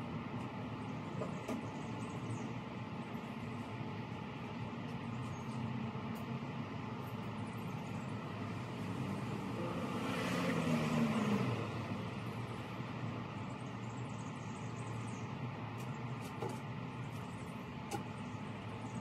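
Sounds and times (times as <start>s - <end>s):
outdoor background hum: 0.0s - 19.0s
vehicle passing by: 8.4s - 13.3s.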